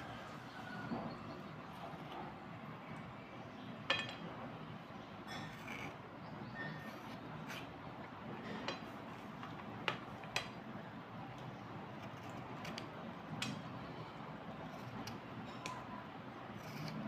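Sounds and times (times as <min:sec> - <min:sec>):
knife scraping slate pencil: 0:05.3 - 0:07.7, 0:14.6 - 0:15.8, 0:16.5 - 0:17.0.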